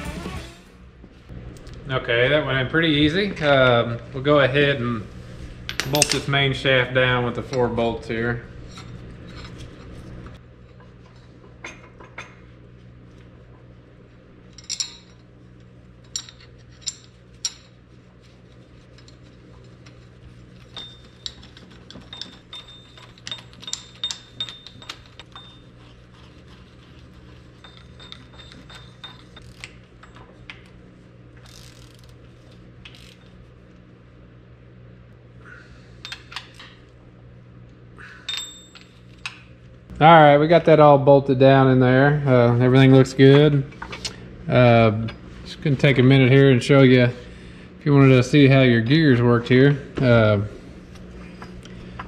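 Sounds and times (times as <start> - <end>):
ratchet wrench clicking: 31.4 - 32.1, 32.9 - 33.3.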